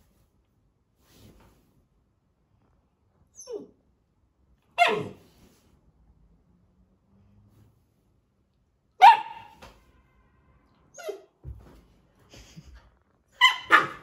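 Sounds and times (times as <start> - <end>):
puppy yelp: 3.3 - 3.8, 4.8 - 5.2, 9.0 - 9.6, 10.9 - 11.4, 13.4 - 14.0
puppy barking: 4.8 - 5.2, 9.0 - 9.6, 13.4 - 14.0.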